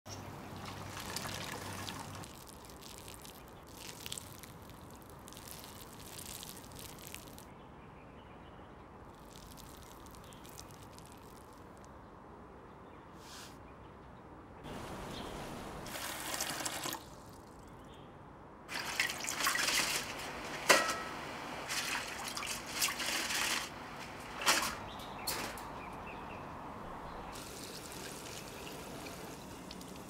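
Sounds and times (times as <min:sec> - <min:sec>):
water dripping and trickling: 0:00.1 - 0:07.5, 0:09.1 - 0:12.0, 0:15.8 - 0:17.8, 0:18.7 - 0:21.0, 0:21.6 - 0:30.0.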